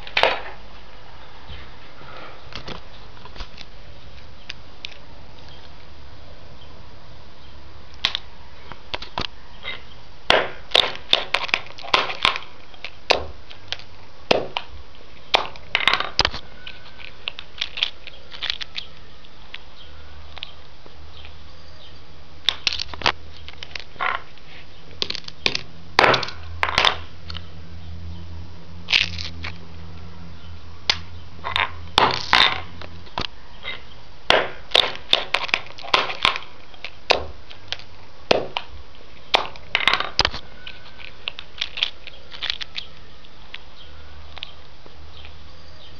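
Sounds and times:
low electrical hum: 0.0 - 45.9
speaker crackling and snapping: 22.4 - 27.5, 30.9 - 43.7.

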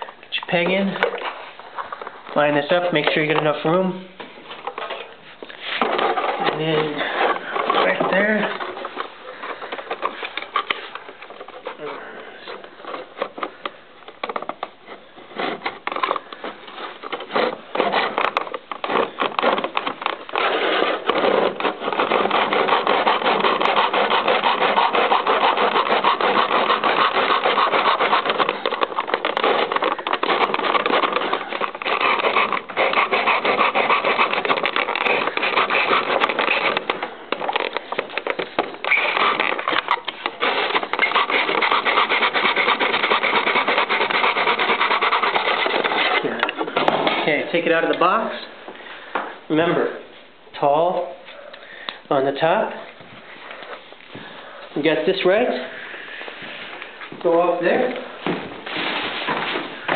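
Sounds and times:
hand saw cutting wood: 5.6 - 13.6, 14.2 - 47.9.

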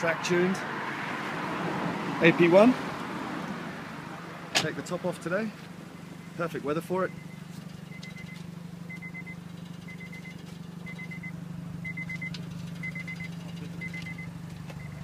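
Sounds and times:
car warning chime beeping: 5.8 - 15.0.

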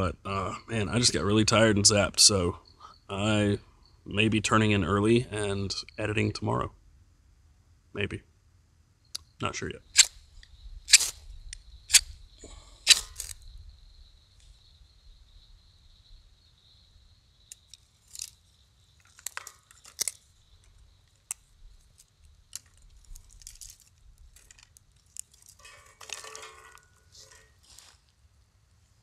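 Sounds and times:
burning twigs crackling: 9.9 - 13.6, 17.4 - 28.4
twigs snapping: 12.8 - 13.4, 17.5 - 28.0.

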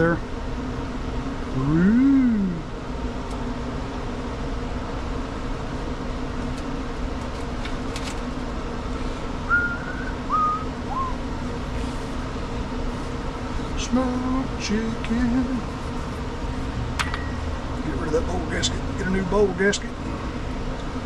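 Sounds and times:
fan humming: 0.0 - 21.0
man humming: 1.5 - 2.7, 13.8 - 15.7
whistled notes: 9.5 - 11.2.

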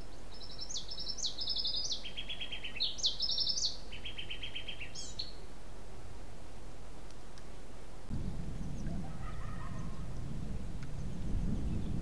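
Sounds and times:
songbird trilling: 0.3 - 5.4.

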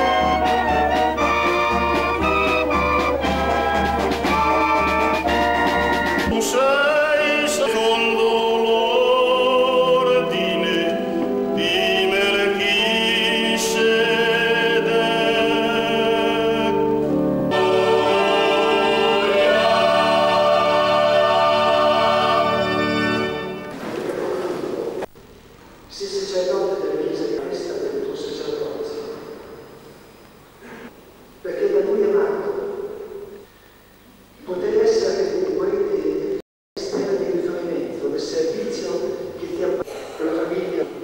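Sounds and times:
brass band playing: 0.0 - 7.8, 14.9 - 24.0
choir singing a hymn: 4.2 - 24.0.

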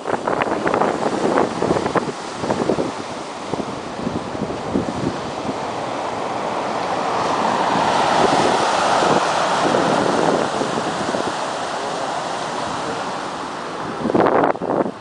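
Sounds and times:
surf breaking on shore: 0.0 - 15.0
wind gusting on microphone: 0.0 - 15.0.

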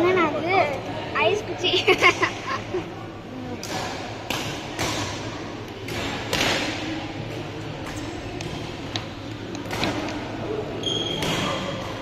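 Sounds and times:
racket hitting shuttlecock: 3.6 - 8.7, 11.1 - 12.0.

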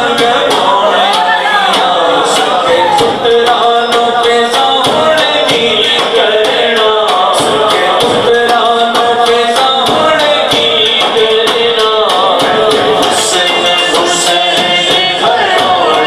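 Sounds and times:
frame drum beating: 0.0 - 16.0
man singing into a microphone: 0.0 - 16.0.

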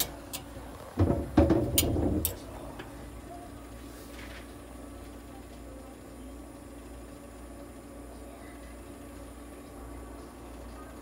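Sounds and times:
therapy equipment humming: 0.0 - 11.0
hose knocking and rattling: 0.9 - 2.4.

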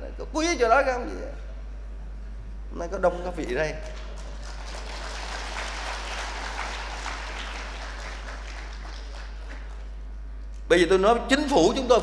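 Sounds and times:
large audience applauding: 4.0 - 10.0.

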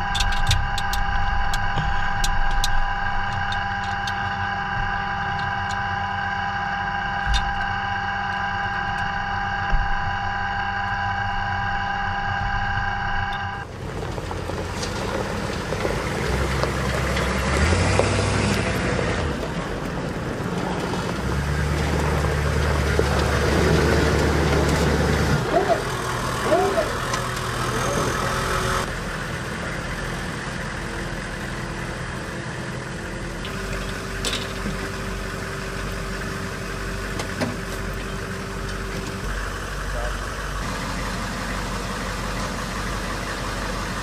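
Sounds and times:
mechanical whine: 0.0 - 13.7
diesel engine running: 0.0 - 44.0.

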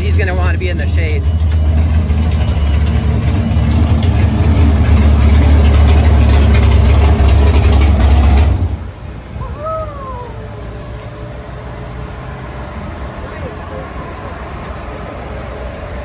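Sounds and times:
car engine idling with low rumble: 0.0 - 11.8.

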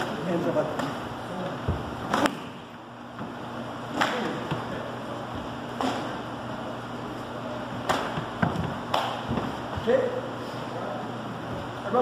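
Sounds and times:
low room hum: 0.0 - 12.0
karate slaps: 1.8 - 2.6, 3.9 - 4.7, 5.7 - 6.2, 7.8 - 9.6.

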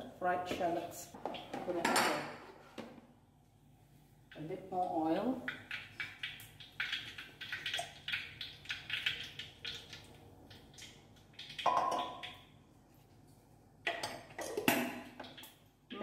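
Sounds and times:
hot oil crackling and spitting: 5.4 - 12.6, 13.8 - 16.0.

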